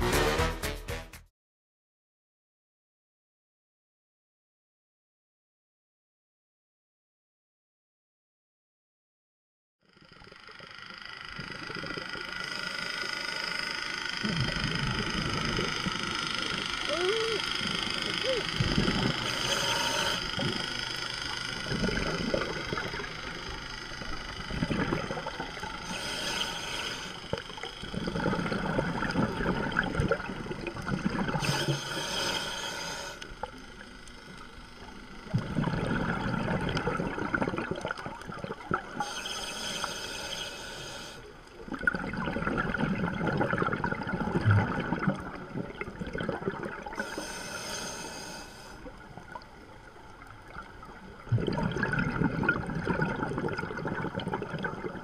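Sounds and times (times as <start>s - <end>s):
bubbling and gurgling underwater: 9.8s - 55.0s
regulator breathing hisses: 19.1s - 20.8s, 25.7s - 27.4s, 31.4s - 33.5s, 39.0s - 41.4s, 47.0s - 48.9s.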